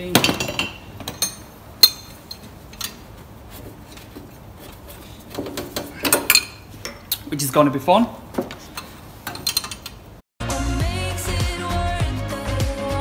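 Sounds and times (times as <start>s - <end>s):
tool handling: 0.1s - 7.3s, 8.3s - 10.1s
spanner clinking against metal: 0.4s - 3.1s, 8.7s - 10.0s.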